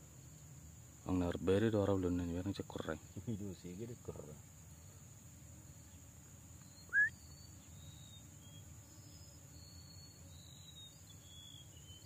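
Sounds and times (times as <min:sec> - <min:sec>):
crickets droning: 0:00.0 - 0:12.0
faint thin whistles: 0:06.6 - 0:08.2
loud rising chirp: 0:06.6 - 0:08.6.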